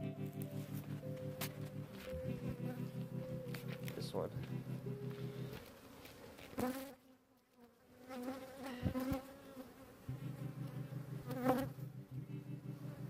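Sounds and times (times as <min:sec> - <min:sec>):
honey bees buzzing: 0:00.0 - 0:07.0, 0:08.0 - 0:13.0
bees flying past microphone: 0:08.1 - 0:09.8.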